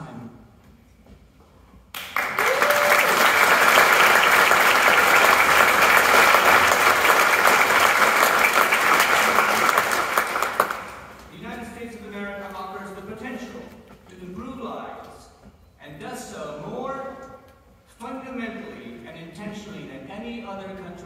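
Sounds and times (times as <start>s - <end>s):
audience applauding: 1.9s - 11.3s.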